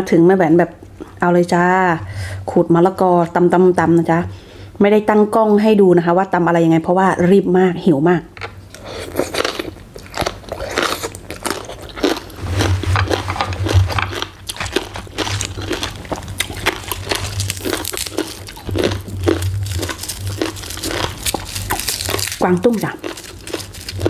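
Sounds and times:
crunchy chewing: 0:08.4 - 0:24.0.

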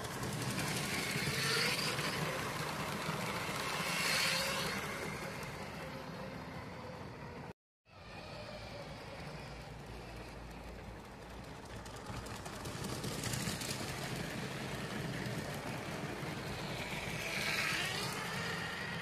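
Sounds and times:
toy train motors whirring: 0:00.0 - 0:19.0
wheels running on plastic track: 0:00.0 - 0:19.0.

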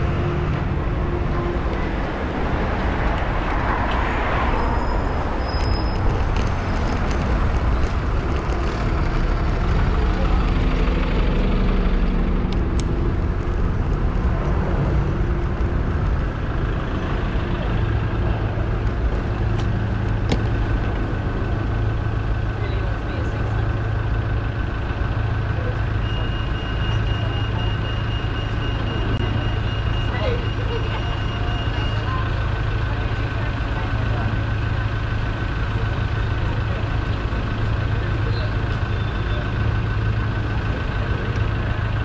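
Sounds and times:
city road traffic: 0:00.0 - 0:42.0.

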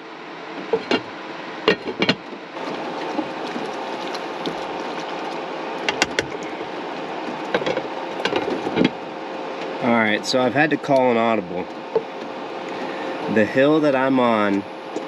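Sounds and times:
faint hum: 0:00.0 - 0:15.0
sauce simmering in a pan: 0:02.6 - 0:07.5
sharp clicks and knocks: 0:05.8 - 0:06.5.

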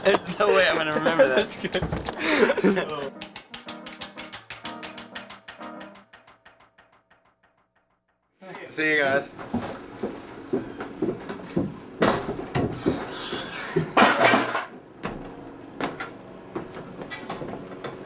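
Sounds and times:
footsteps on wooden deck: 0:09.4 - 0:14.0.

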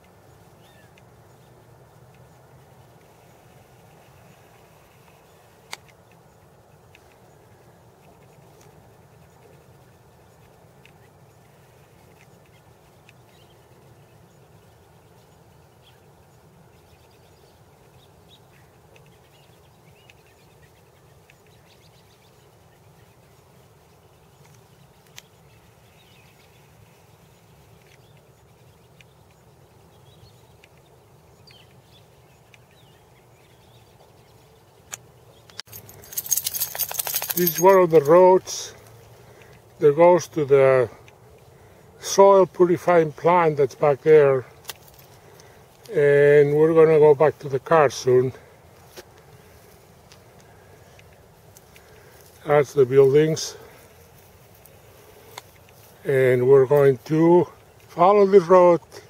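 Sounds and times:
faint bird chirps: 0:00.2 - 0:43.2.

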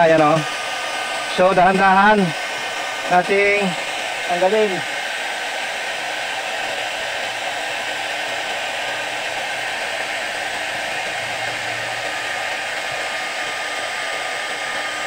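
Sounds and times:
hair dryer blowing: 0:00.0 - 0:15.0.

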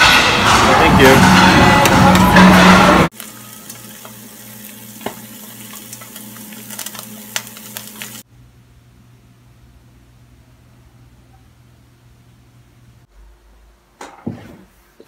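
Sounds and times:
loud music: 0:00.0 - 0:03.1
food sizzling in a pan: 0:03.1 - 0:08.2.

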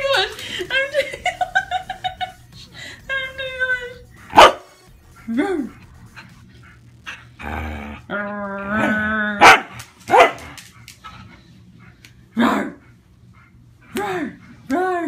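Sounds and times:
dog barking: 0:04.3 - 0:04.8, 0:09.4 - 0:10.6
dog growling: 0:05.0 - 0:09.5.

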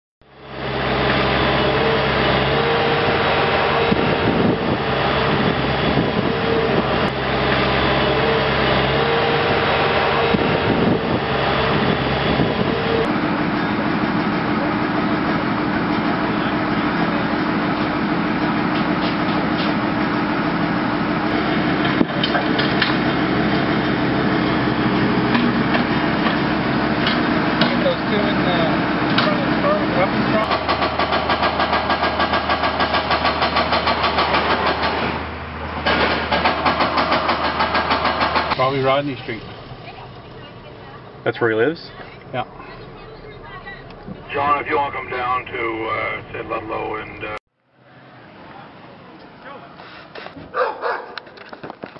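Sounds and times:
engine idling: 0:10.6 - 0:47.4.

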